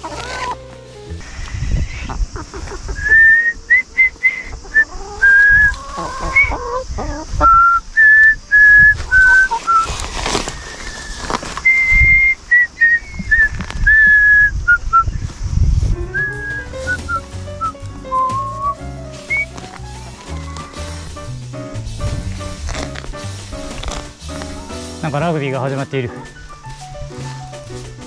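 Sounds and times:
person whistling short notes: 7.4s - 9.9s, 11.6s - 15.2s, 16.0s - 19.6s.

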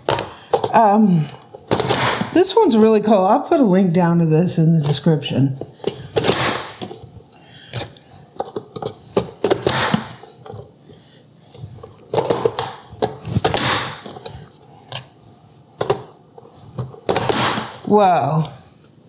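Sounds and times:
vegetable chopper dicing potatoes: 1.6s - 2.8s, 4.8s - 7.0s, 7.7s - 10.2s.

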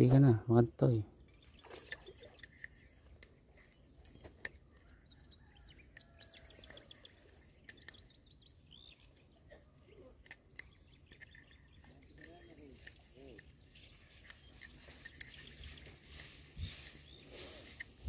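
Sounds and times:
faint bird chirps: 1.1s - 18.0s
faint clicks: 5.6s - 8.2s.

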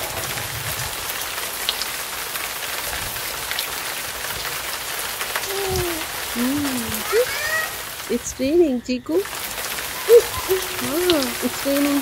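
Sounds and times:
rain on wet pavement: 0.0s - 12.0s.

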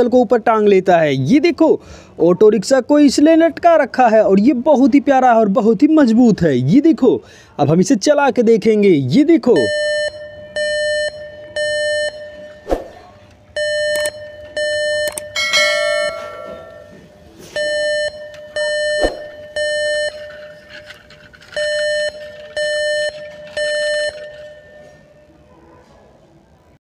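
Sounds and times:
toy electronic beeps: 13.6s - 15.4s, 17.6s - 24.9s
bright multi-tone chime: 15.3s - 17.7s.

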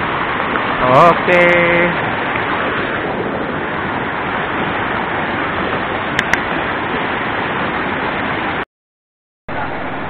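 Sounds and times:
river rapid rushing: 0.0s - 8.6s, 9.5s - 10.0s.

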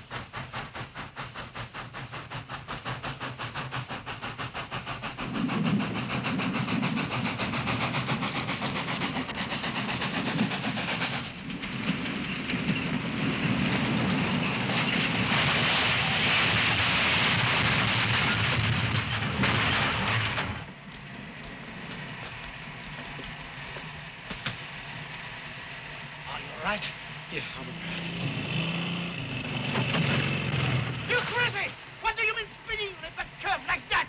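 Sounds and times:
steam hissing: 0.0s - 11.5s
steam locomotive rumbling: 0.0s - 34.0s.

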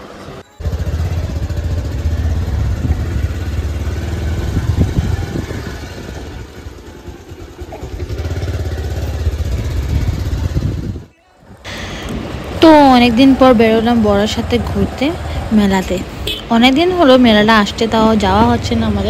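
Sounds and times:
motorcycle engine running: 0.6s - 11.1s.

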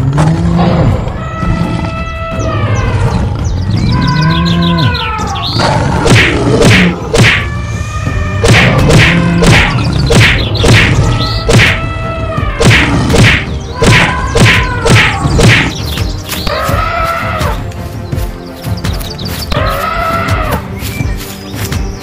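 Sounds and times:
cartoon whacks and thuds: 6.0s - 7.5s, 8.4s - 11.8s, 12.6s - 15.8s
pitch-bending animal calls: 19.5s - 20.7s.

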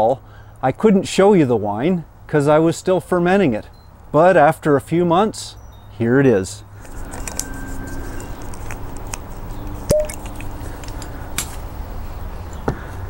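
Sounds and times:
bottle and corkscrew handling clicks: 8.2s - 11.0s.

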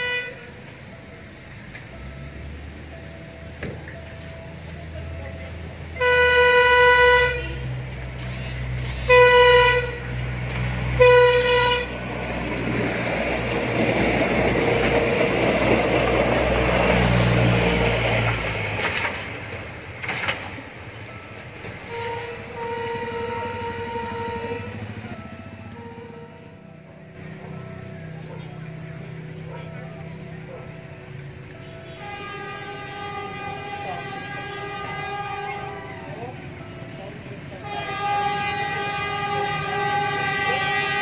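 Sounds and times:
train horn blasts: 0.0s - 0.6s, 6.0s - 12.3s, 21.8s - 26.6s, 31.6s - 36.5s, 37.5s - 41.0s
diesel train rumbling past: 0.0s - 41.0s.

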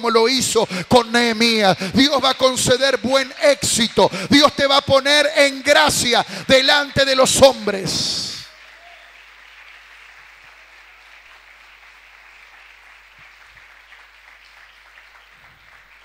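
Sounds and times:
crowd applauding: 5.5s - 16.0s.

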